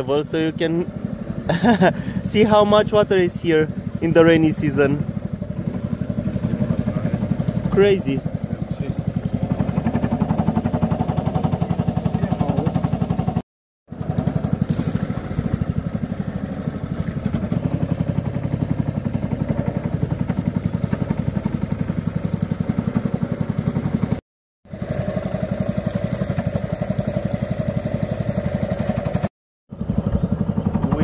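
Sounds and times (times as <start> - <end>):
boat motor pulsing: 0.0 - 31.0.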